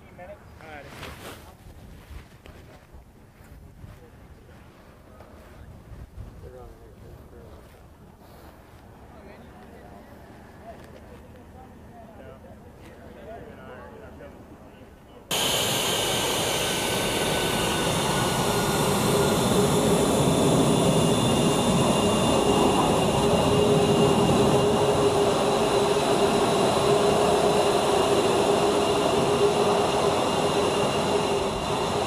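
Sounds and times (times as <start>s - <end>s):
jet engines whining: 15.3s - 32.0s.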